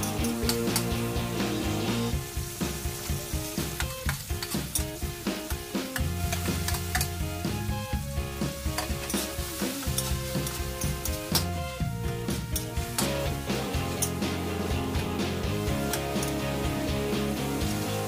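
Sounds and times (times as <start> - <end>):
spatula clicking against pan: 0.0 - 1.0
background music: 0.0 - 18.0
vegetables sizzling in oil: 0.0 - 18.0
spatula scraping a wok: 8.5 - 11.5, 12.4 - 15.0.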